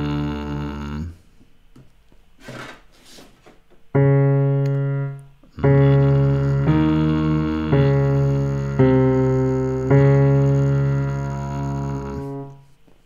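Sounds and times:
piano chords: 0.0 - 1.1, 3.9 - 12.7
vocal warm-up exercise: 0.0 - 1.4, 5.0 - 12.8.

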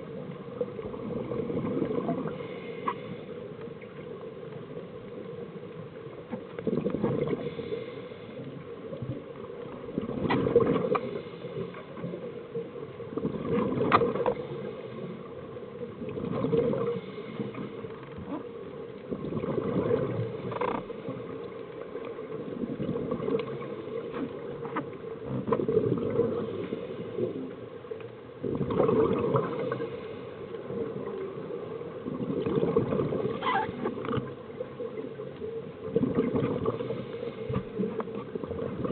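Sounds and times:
underwater bubbles from regulators: 0.0 - 2.5, 6.6 - 7.6, 8.9 - 12.2, 13.0 - 15.0, 15.9 - 27.4, 28.4 - 38.9.

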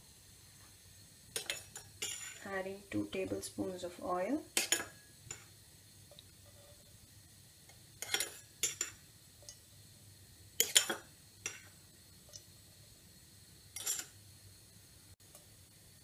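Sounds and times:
metal utensils clattering: 1.4 - 2.4, 8.0 - 9.0, 13.8 - 14.2.

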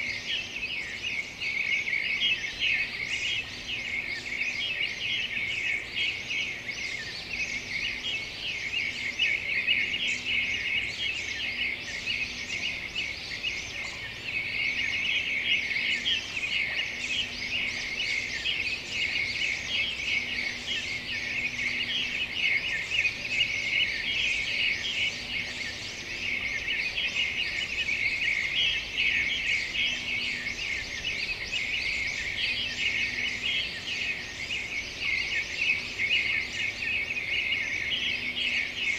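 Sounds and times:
small birds chirping: 0.0 - 38.9.

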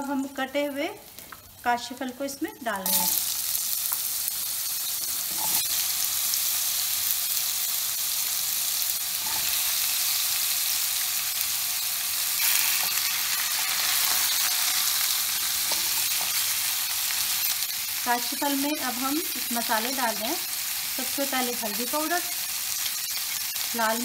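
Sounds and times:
food sizzling in hot oil: 0.0 - 24.0.

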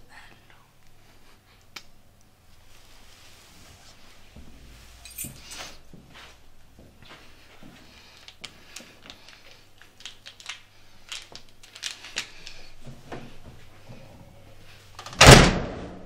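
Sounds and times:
loud thud: 15.2 - 16.0.

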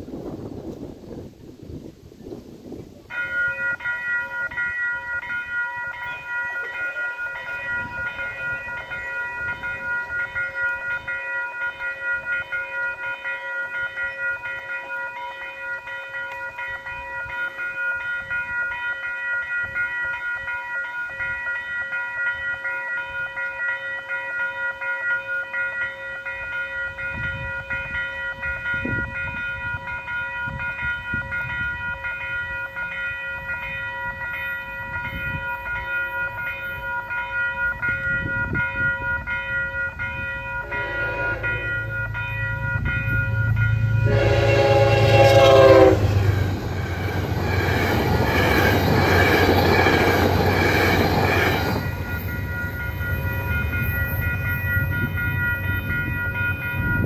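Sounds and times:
low train rumble: 0.0 - 24.7, 25.5 - 57.0
railroad crossing bell ringing: 3.0 - 57.0.

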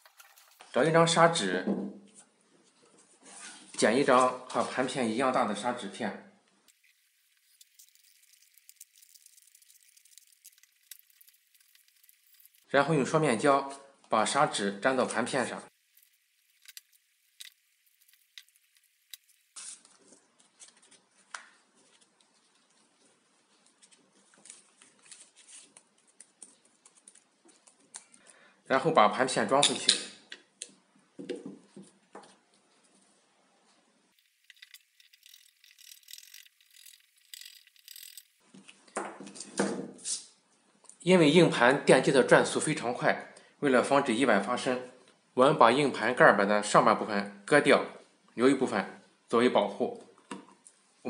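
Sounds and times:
tape and sandpaper crinkling: 0.0 - 0.8, 6.7 - 12.8, 15.7 - 28.2, 34.1 - 39.5
screwdriver clicking and scraping: 34.2 - 38.3.

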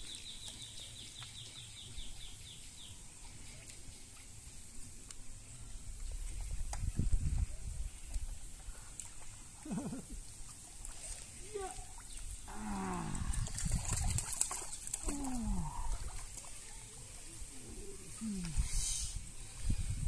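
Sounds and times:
fish thrashing and splashing: 13.3 - 16.6.

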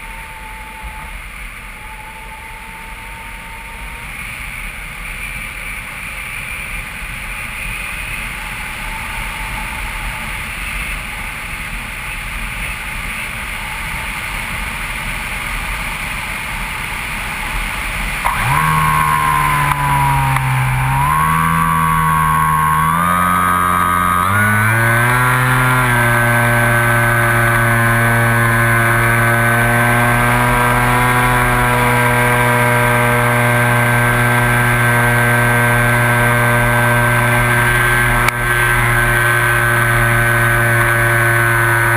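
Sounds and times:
electric motor and propeller hum: 18.0 - 41.9.

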